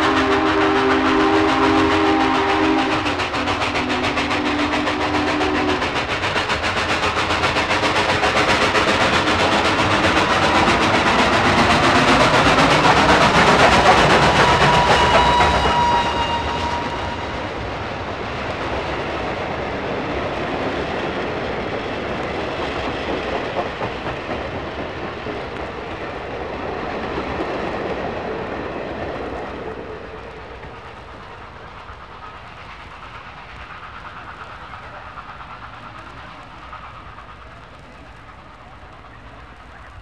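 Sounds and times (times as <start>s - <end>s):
rail clatter: 0.0s - 40.0s
steam train rushing past: 0.0s - 40.0s
train chime whistle: 14.2s - 17.5s.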